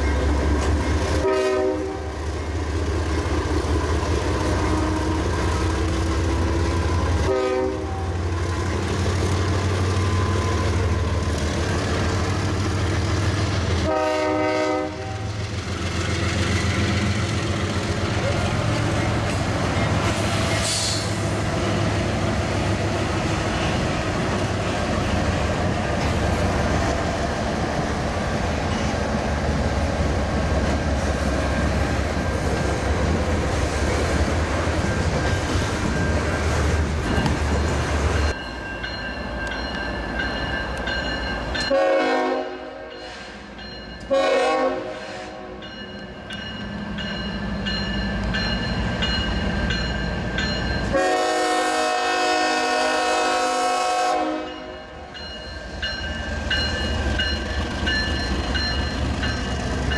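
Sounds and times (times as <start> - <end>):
diesel locomotive engine: 0.0 - 59.9
freight train rolling past: 0.0 - 59.9
locomotive horn blasts: 1.2 - 2.1, 7.1 - 8.2, 13.8 - 15.3, 41.7 - 43.4, 44.1 - 45.6, 50.9 - 54.8.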